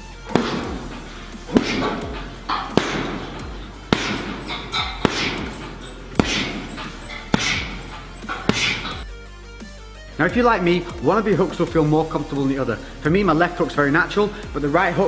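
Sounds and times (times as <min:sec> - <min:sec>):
gloves thudding on punching bag: 0:00.0 - 0:09.1.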